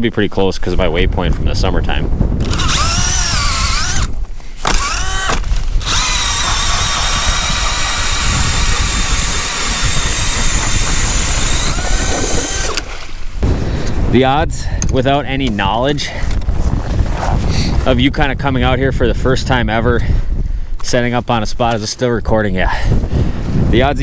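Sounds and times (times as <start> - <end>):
cordless drill turning ice auger: 2.4 - 12.9.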